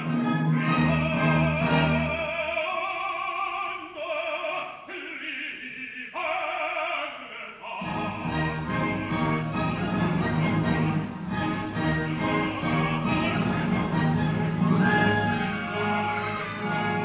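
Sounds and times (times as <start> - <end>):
orchestra playing: 0.0 - 2.7, 7.8 - 17.0
opera singers duet: 0.0 - 17.0.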